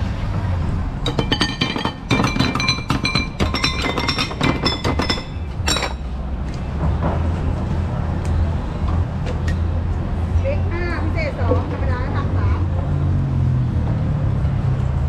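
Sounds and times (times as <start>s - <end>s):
metal ladle clinking ceramic bowls: 1.1s - 6.0s.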